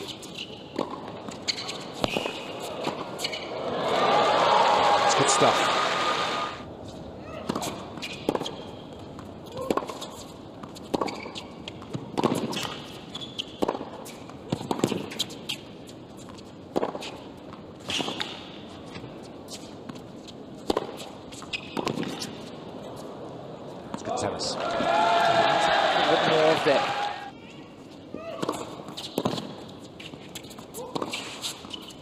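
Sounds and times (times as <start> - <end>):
tennis ball struck with racquets: 0.0 - 3.5, 7.4 - 15.6, 16.7 - 17.2, 17.8 - 18.5, 20.6 - 22.4, 28.3 - 29.6, 30.2 - 31.9.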